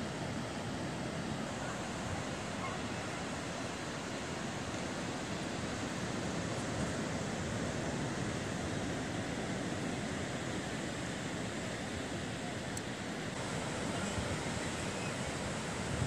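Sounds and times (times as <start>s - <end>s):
surf breaking on shore: 0.0s - 16.0s
wind buffeting microphone: 13.9s - 16.0s.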